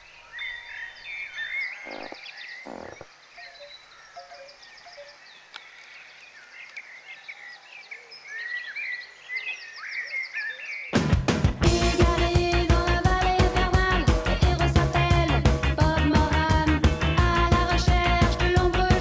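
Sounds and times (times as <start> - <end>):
songbirds chirping and trilling: 0.0 - 11.0
loud rock music with guitar: 11.0 - 19.0.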